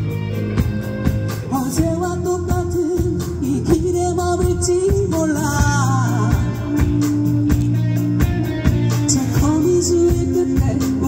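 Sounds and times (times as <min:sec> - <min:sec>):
amplified live band: 0:00.0 - 0:11.0
woman singing into a microphone: 0:01.4 - 0:07.0, 0:08.9 - 0:11.0.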